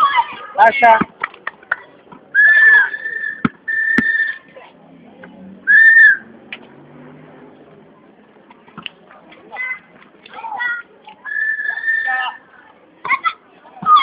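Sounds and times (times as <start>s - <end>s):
high whistle blasts: 2.4s - 4.4s, 5.7s - 6.3s, 11.3s - 12.2s.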